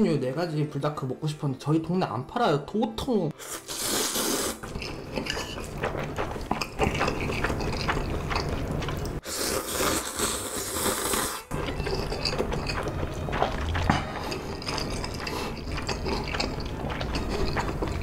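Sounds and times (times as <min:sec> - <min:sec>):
slurping noodles: 0:03.4 - 0:18.0
wet chewing clicks: 0:04.6 - 0:09.2, 0:10.7 - 0:18.0.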